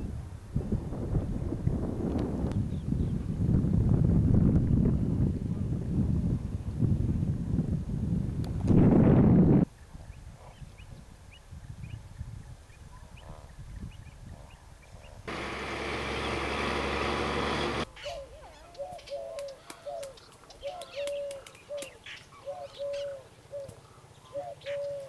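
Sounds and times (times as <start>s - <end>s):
small birds chirping: 17.6s - 25.0s
dove cooing: 18.0s - 25.0s.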